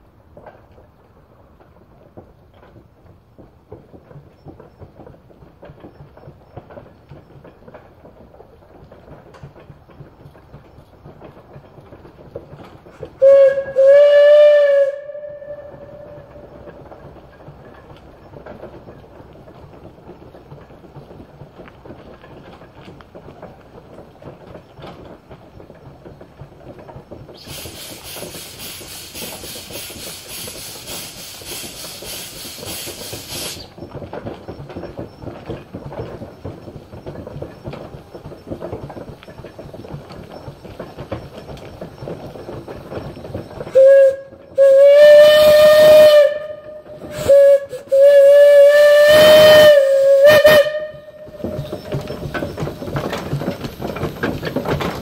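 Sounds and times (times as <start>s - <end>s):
steam traction engine running: 0.0s - 55.0s
steam whistle blasts: 13.2s - 16.3s, 43.8s - 51.3s
loud hiss of steam: 27.3s - 33.8s, 43.8s - 55.0s.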